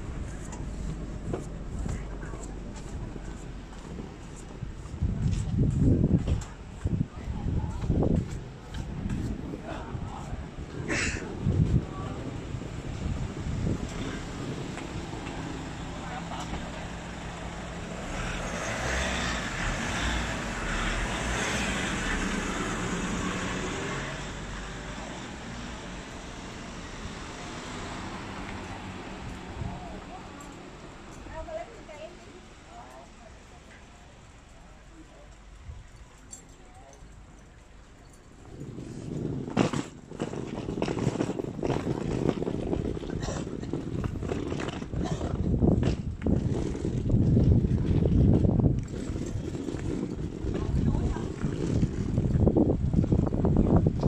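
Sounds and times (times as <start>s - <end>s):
wind rumbling on microphone: 0.0s - 31.6s, 37.1s - 54.0s
van driving past: 13.6s - 31.0s.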